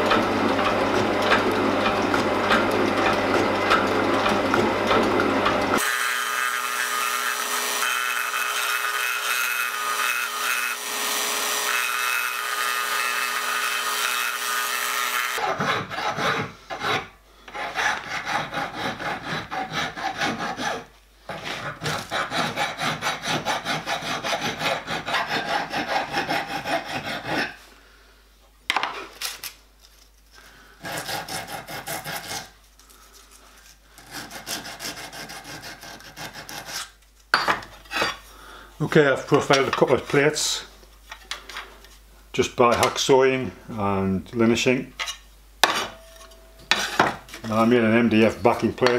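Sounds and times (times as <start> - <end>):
belt sander running: 0.0 - 15.5
hand file rasping on metal: 15.3 - 27.6, 30.8 - 32.6, 34.0 - 37.0.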